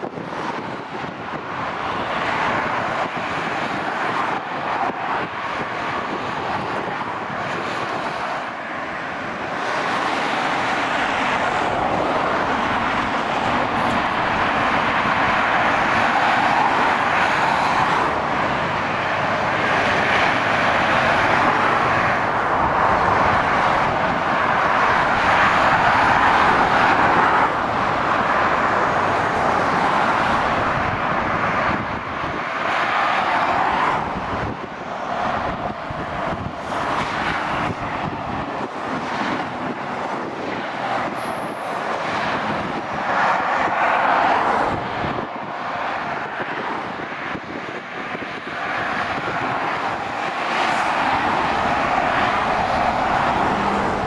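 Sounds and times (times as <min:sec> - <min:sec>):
motorway traffic tyre noise: 0:00.0 - 0:54.0.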